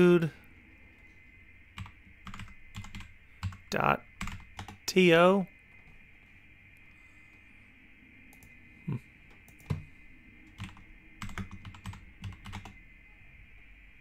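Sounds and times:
computer keyboard typing: 1.8s - 4.9s, 9.3s - 9.9s, 10.5s - 12.8s.

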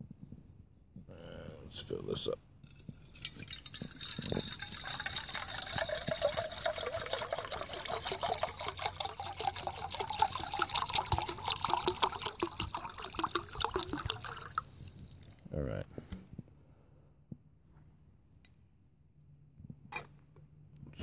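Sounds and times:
water pouring into a metal pot: 2.7s - 15.6s.

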